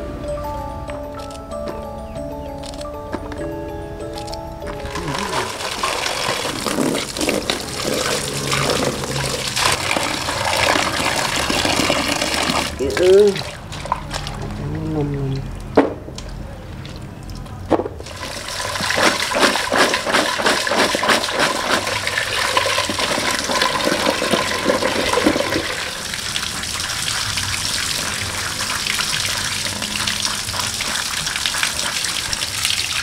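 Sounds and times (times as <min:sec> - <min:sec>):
running water splashing: 0:04.9 - 0:14.6, 0:18.0 - 0:33.0.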